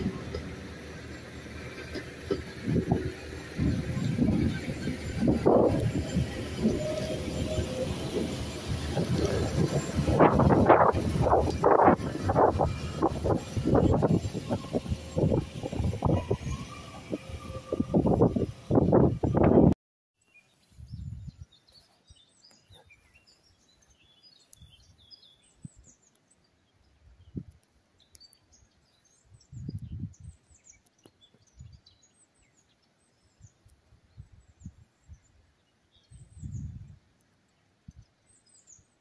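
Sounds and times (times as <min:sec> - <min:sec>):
passing train rumble: 0:00.0 - 0:19.8
small birds chirping: 0:20.2 - 0:39.0.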